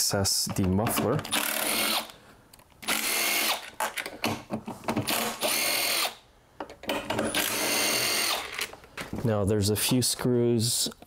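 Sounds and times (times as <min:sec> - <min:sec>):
cordless impact driver bursts: 0:01.3 - 0:02.2, 0:02.8 - 0:03.6, 0:05.1 - 0:06.2, 0:07.3 - 0:08.7.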